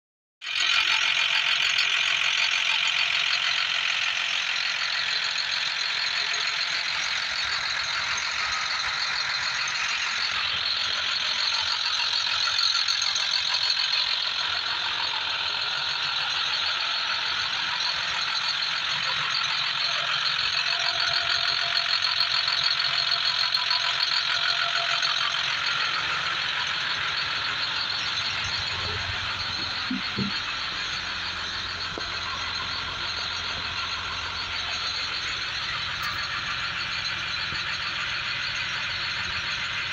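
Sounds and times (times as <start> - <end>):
bus diesel engine idling: 0.4 - 39.9.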